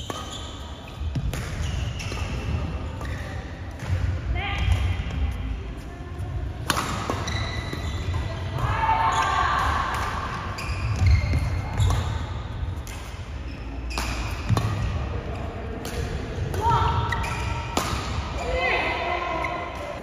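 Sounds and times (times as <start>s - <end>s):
shoes squeaking on court floor: 0.0s - 4.0s, 6.8s - 9.5s, 10.3s - 15.6s, 16.9s - 18.5s
racket striking shuttlecock: 6.6s - 7.8s, 17.3s - 18.3s.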